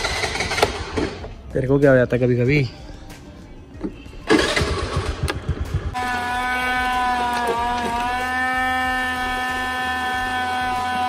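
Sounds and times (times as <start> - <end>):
scooter engine starting: 0.0 - 1.3, 4.2 - 6.4.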